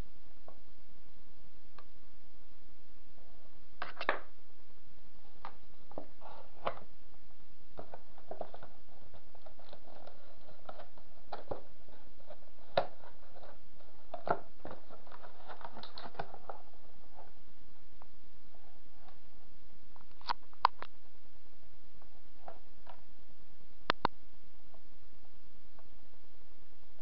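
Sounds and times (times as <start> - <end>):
keyboard and box handling noise: 7.8 - 17.4.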